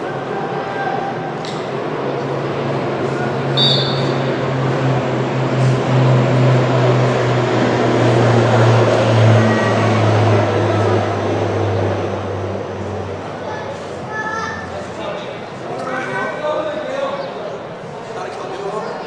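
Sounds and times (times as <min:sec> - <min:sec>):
low engine drone: 0:00.0 - 0:15.7.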